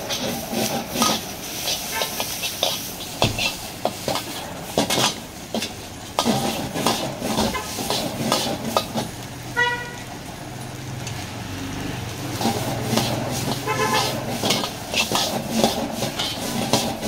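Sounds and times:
utensils scraping steel wok: 0.0 - 9.2, 12.1 - 17.0
food sizzling: 0.0 - 17.0
gas burner roaring: 0.0 - 17.0
horn-like tone: 9.6 - 10.1, 13.6 - 14.2.

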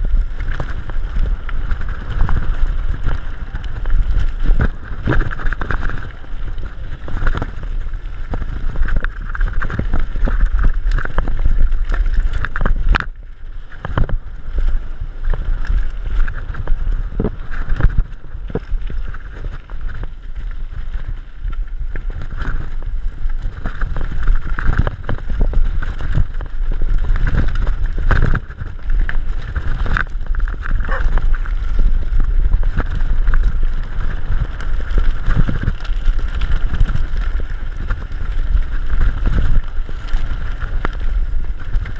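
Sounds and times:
bike knocking and rattling: 0.0 - 41.9
wind buffeting microphone: 0.0 - 41.9.

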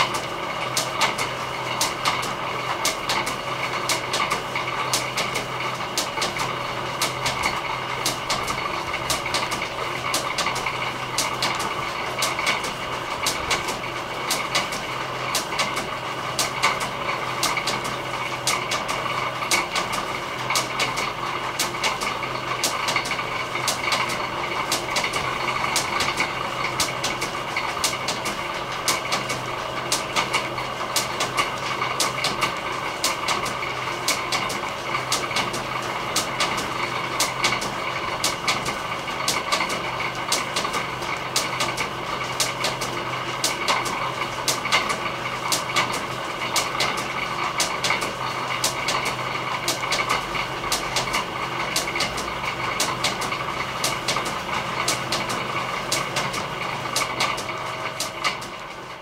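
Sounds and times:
belt drive motor humming: 0.0 - 59.0
irregular mechanical clicks: 32.0 - 58.7.

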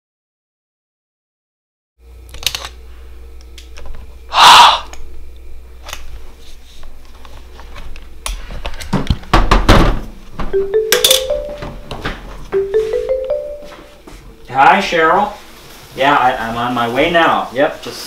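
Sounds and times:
phone ringtone marimba notes: 10.6 - 14.1.

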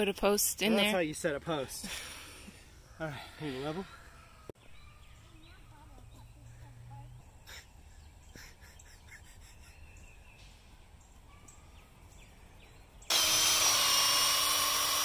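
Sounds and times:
faint bird chirps: 2.8 - 13.1
cordless drill drilling into wood: 13.1 - 15.0.

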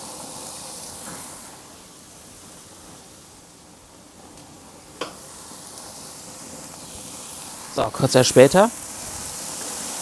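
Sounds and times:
food sizzling on a grill: 0.0 - 10.0.

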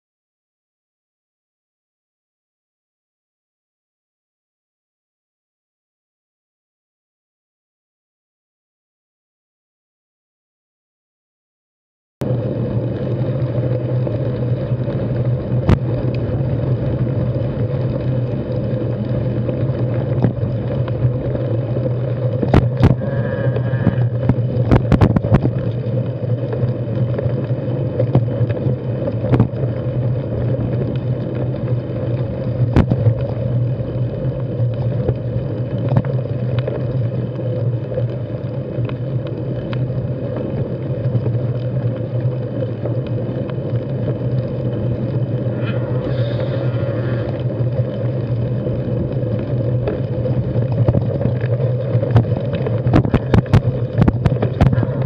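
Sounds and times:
bike tyre and wind rumble: 12.2 - 55.0
rocks knocking and rattling: 19.9 - 21.1, 22.3 - 25.7, 29.2 - 29.6, 32.6 - 33.3, 50.6 - 55.0.

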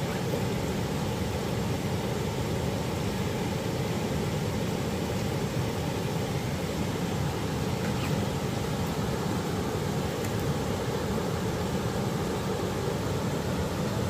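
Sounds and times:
river water rushing over rapids: 0.0 - 14.0.

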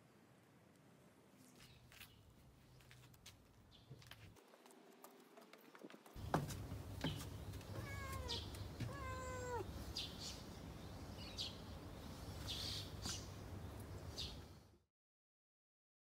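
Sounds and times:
cat meowing: 7.6 - 9.8.

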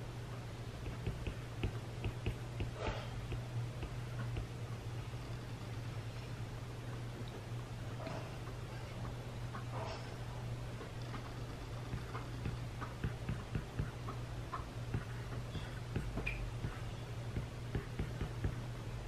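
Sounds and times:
steady low hum: 0.0 - 19.0
stylus tapping on glass screen: 0.8 - 4.5, 15.9 - 18.6.

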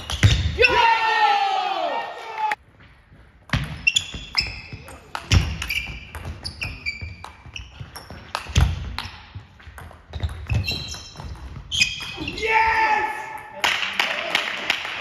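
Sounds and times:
shoes squeaking on floor: 0.0 - 0.5, 3.5 - 12.4.

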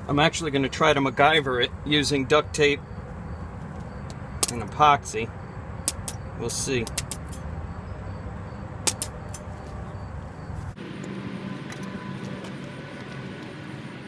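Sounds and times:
low outdoor rumble: 0.0 - 14.0
sharp click: 4.1 - 4.6, 5.8 - 6.2, 6.8 - 7.4, 8.8 - 9.5.

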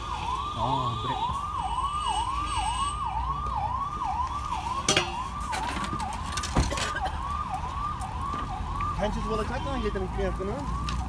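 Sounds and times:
electronic siren tone: 0.0 - 11.0
metallic clanks: 4.9 - 5.2.

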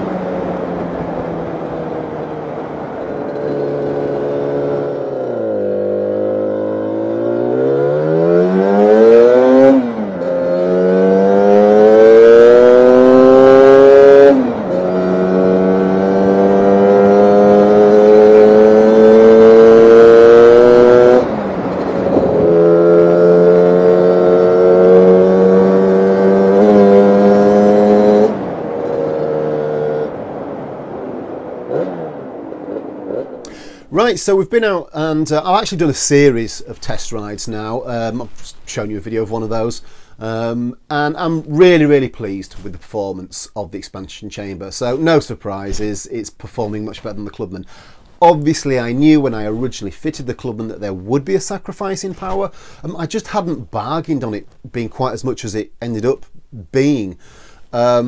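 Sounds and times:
scooter engine revving: 0.0 - 33.7.

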